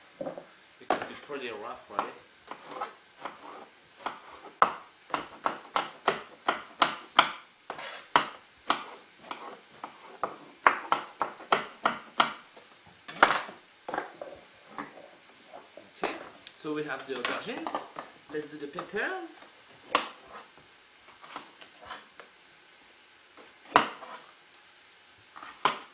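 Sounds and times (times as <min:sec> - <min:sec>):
knife chopping on wooden board: 0:01.9 - 0:12.4, 0:19.9 - 0:20.5, 0:23.7 - 0:24.2, 0:25.4 - 0:25.9.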